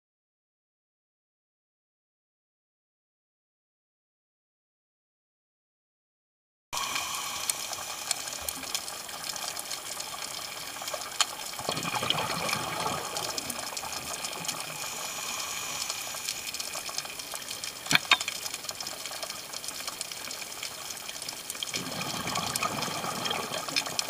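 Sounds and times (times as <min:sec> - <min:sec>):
regulator bubbles: 0:06.8 - 0:24.0
underwater hiss and crackling: 0:06.8 - 0:24.0
sharp clicks: 0:17.9 - 0:18.6.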